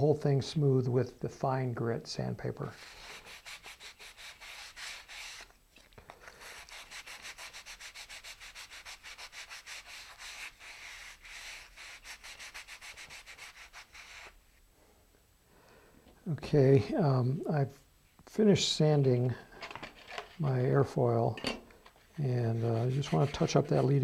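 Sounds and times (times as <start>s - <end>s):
sandpaper scraping wood: 2.7s - 5.5s, 6.2s - 14.4s, 22.1s - 24.0s.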